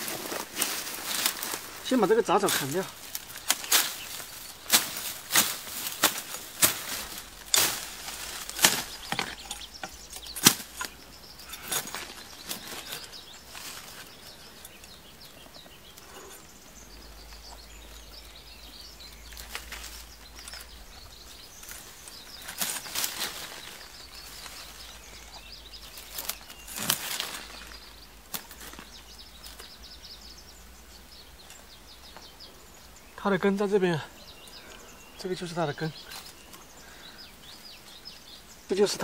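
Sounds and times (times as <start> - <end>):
brush rustling: 0.0 - 39.0
blade chopping through weeds: 2.5 - 11.0.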